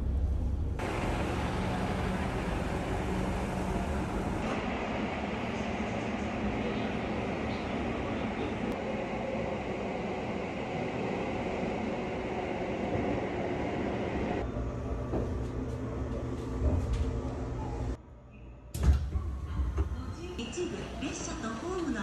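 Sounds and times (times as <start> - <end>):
train wheels rumbling: 0.0 - 8.8
rail station sound: 0.0 - 18.1, 19.2 - 22.0.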